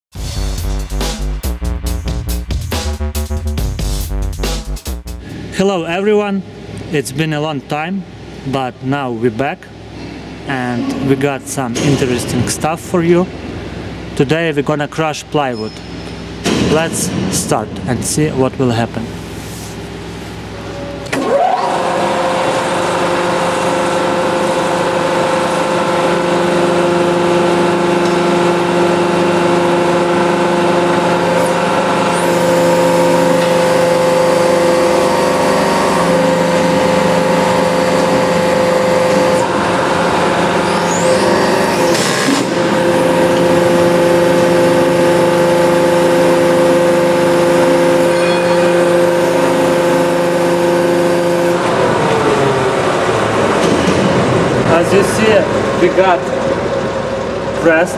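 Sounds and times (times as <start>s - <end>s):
hydraulic pump motor humming: 15.6s - 57.8s.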